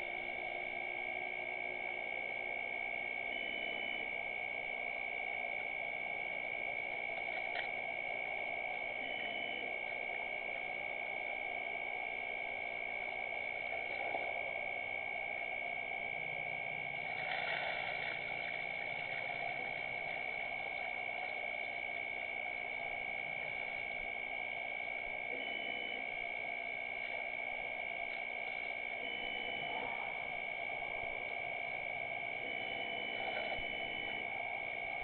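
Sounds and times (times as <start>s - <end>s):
constant high-pitched tone: 0.0s - 35.0s.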